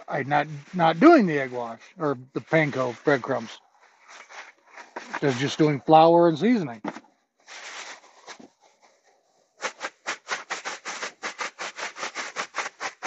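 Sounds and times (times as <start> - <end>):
plastic bag rustling: 7.4 - 11.7
bag shaking rhythmically: 9.6 - 13.0.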